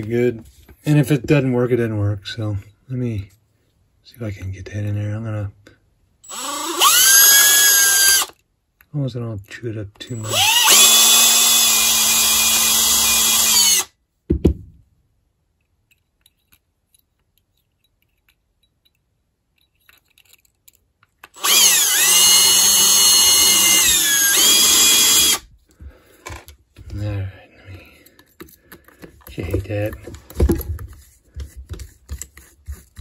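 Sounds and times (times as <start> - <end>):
power drill drilling into brass: 6.2 - 8.4, 10.2 - 13.9, 21.4 - 25.4.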